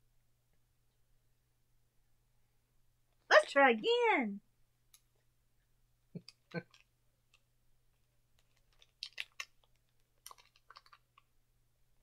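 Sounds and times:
candy wrapper crackling: 8.3s - 11.4s.

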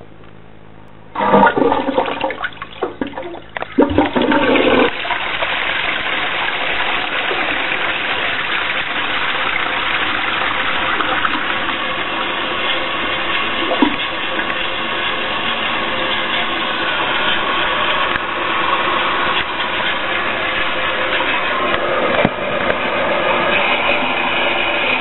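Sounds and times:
toilet flushing: 1.1s - 25.0s.

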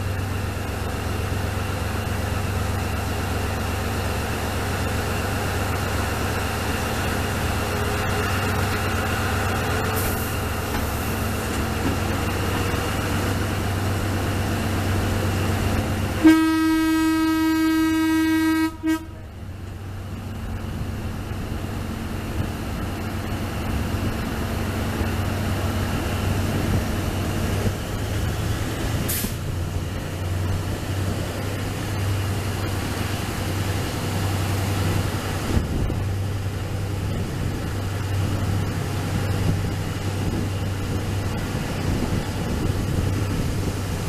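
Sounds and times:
diesel locomotive engine drone: 0.0s - 44.0s
wheel and rail noise: 0.0s - 44.0s
wind: 0.0s - 44.0s
brief hiss: 9.9s - 11.2s, 29.0s - 29.5s.

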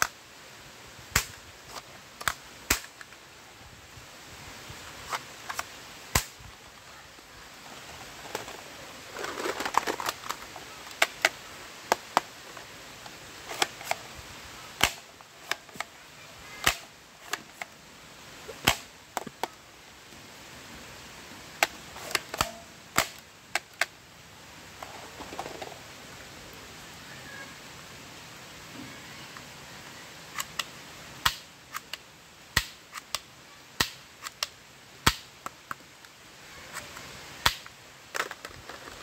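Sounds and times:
plastic toys clattering together: 8.2s - 11.2s, 38.1s - 39.0s.

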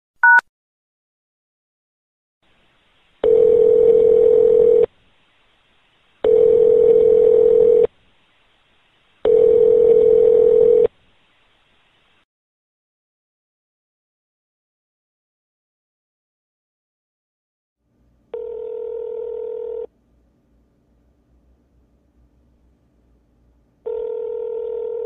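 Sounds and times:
keypad tone: 0.2s - 0.4s
faint line hiss: 2.4s - 3.5s, 10.8s - 12.2s
phone ringback tone: 3.2s - 4.9s, 6.2s - 7.9s, 9.2s - 10.9s, 18.3s - 19.9s, 23.8s - 25.0s.

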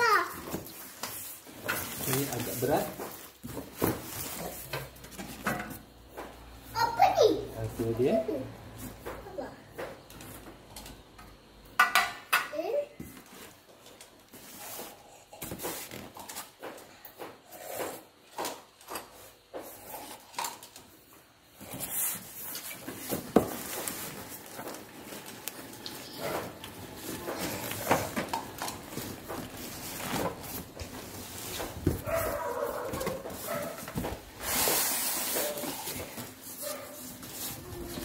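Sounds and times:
cardboard flaps rustling: 21.6s - 38.0s
foam rubbing and squeaking: 34.4s - 38.0s.

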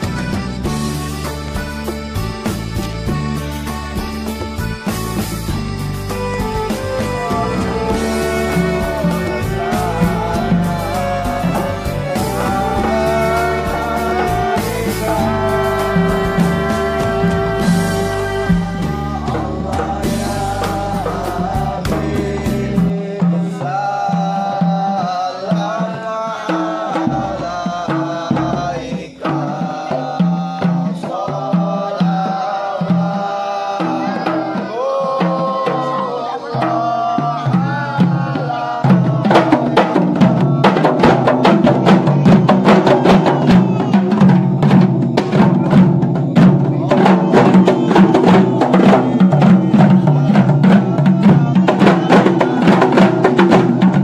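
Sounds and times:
frame drums beaten: 0.0s - 54.0s
chanted sung melody: 6.2s - 25.5s.

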